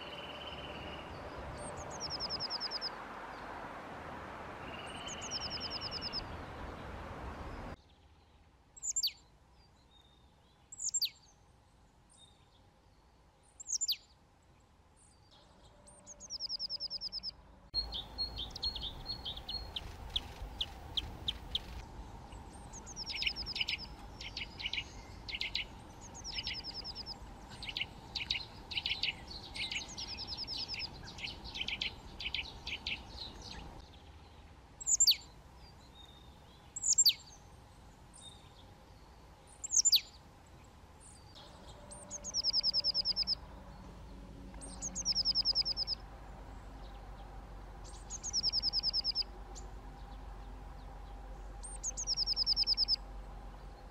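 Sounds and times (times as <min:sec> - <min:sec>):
nuthatch calls: 0:22.7 - 0:33.0, 0:34.8 - 0:35.2, 0:36.8 - 0:37.2, 0:39.6 - 0:40.1, 0:42.0 - 0:43.4, 0:44.6 - 0:46.0, 0:47.9 - 0:49.2, 0:51.6 - 0:53.0.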